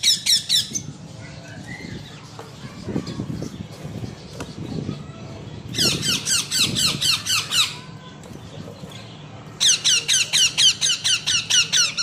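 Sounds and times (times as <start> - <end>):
parakeets squawking: 0.0 - 7.9, 9.5 - 12.0.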